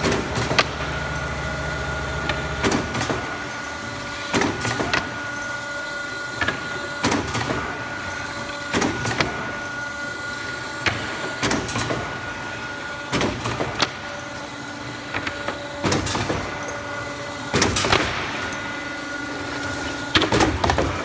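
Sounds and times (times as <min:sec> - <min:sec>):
machine clacks and knocks: 0:00.0 - 0:01.6
hydraulic unit humming: 0:00.0 - 0:21.0.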